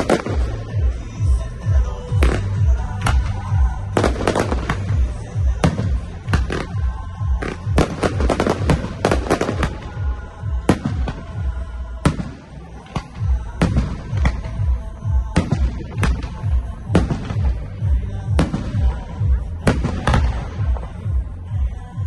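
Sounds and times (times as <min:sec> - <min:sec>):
firework bangs: 0:00.0 - 0:21.1.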